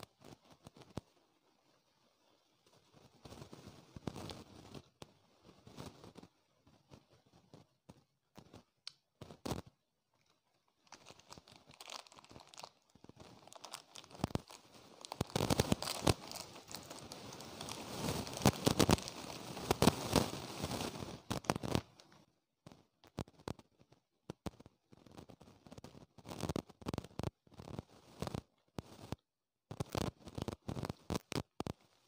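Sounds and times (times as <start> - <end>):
plastic wrapper crinkling: 8.4 - 22.2, 24.6 - 32.0.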